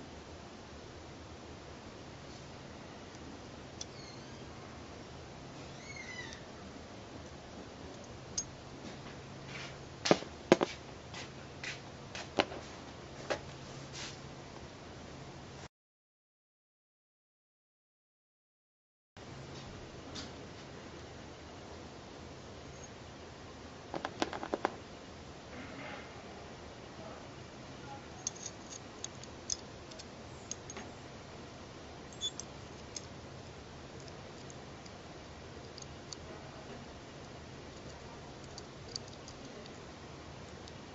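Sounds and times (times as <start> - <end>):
small metal parts clicking: 28.2 - 30.9, 32.1 - 35.0, 35.6 - 36.3, 37.2 - 39.8.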